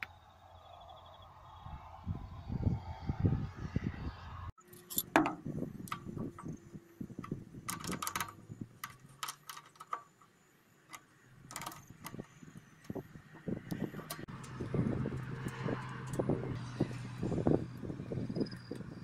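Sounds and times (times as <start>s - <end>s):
light metallic clicks and knocks: 4.7s - 16.7s.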